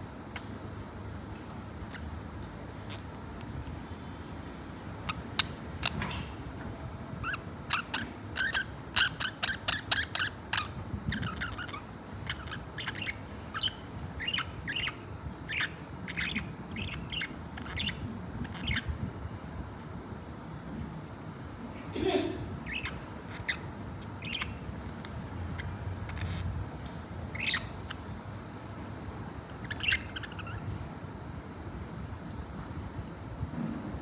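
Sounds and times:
low background hum: 0.0 - 34.0
budgerigars chirping and warbling: 2.9 - 3.2, 5.0 - 6.4, 7.2 - 18.9, 22.6 - 26.6, 27.3 - 28.0, 29.4 - 30.8.

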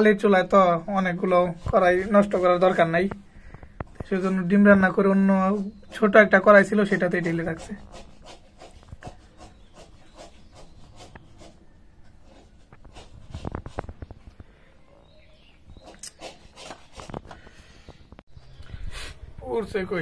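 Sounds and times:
handling noise rubbing and clicks: 6.9 - 14.5, 15.6 - 17.5.

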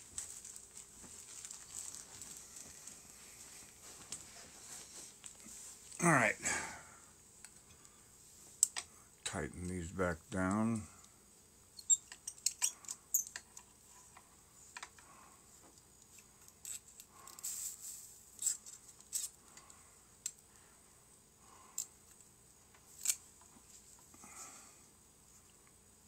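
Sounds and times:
pliers clicking and scraping metal: 11.8 - 13.7, 16.1 - 17.4, 18.4 - 20.4, 23.0 - 23.2.

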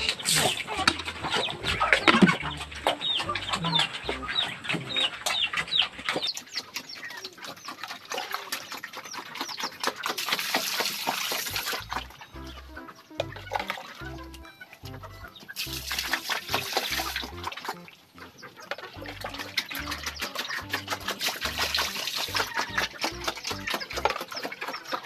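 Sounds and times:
chickens chirping and clucking: 0.0 - 25.0
pecking clicks: 8.8 - 25.0.

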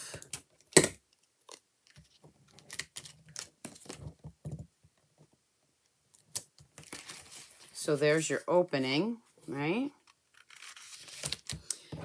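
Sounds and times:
paper rustling: 6.8 - 7.8, 10.3 - 11.6.

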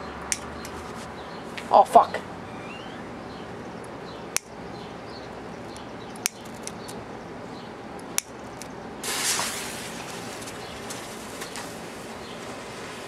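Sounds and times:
sharp pops: 9.0 - 11.9
smoke ball hissing: 9.0 - 13.0.

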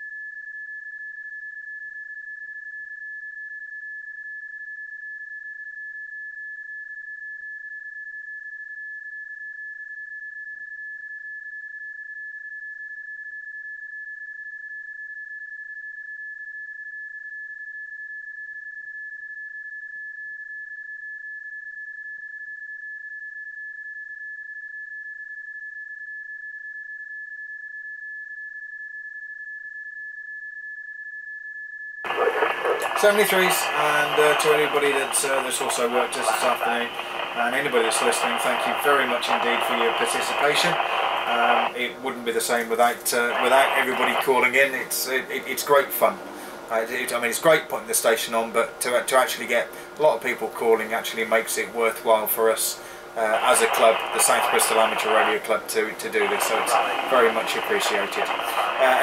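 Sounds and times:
steady high tone: 32.1 - 46.2, 53.2 - 59.0.

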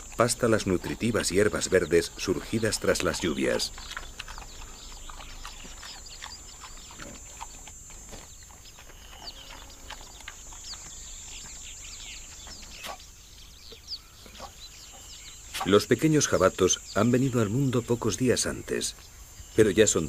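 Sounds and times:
warthog grunts and snuffles: 0.0 - 11.4.

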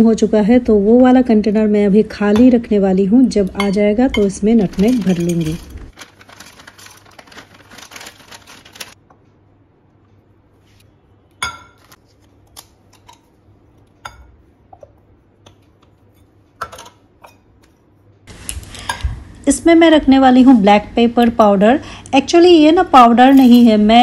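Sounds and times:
spice pods rattling into canister: 4.6 - 9.0.

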